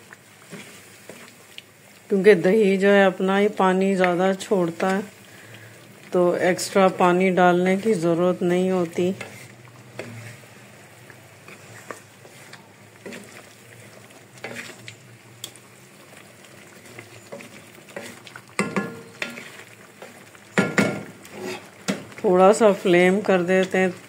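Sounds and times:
chicken sizzling in oil: 0.0 - 24.0
wooden spatula scraping pan: 0.4 - 1.4, 7.6 - 10.6, 11.4 - 14.9, 16.8 - 20.2, 21.0 - 23.8.

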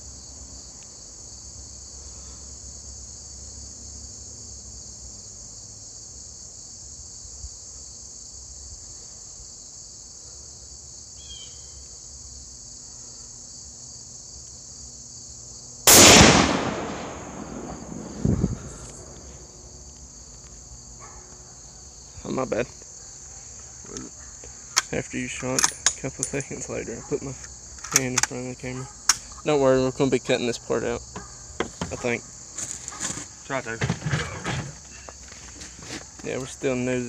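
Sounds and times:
insects buzzing: 0.0 - 37.0
rifle shot: 15.9 - 19.5.

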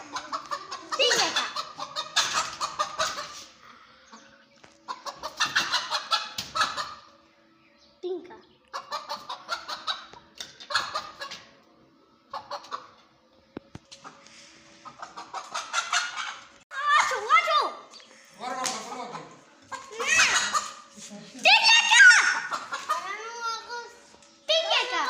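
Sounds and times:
hens clucking and cackling: 0.0 - 7.2, 8.6 - 13.1, 13.9 - 16.6, 18.3 - 21.0, 21.6 - 23.6.

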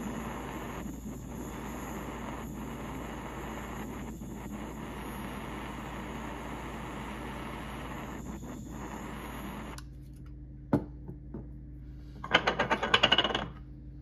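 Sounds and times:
butane torch flame hissing: 0.0 - 9.8.

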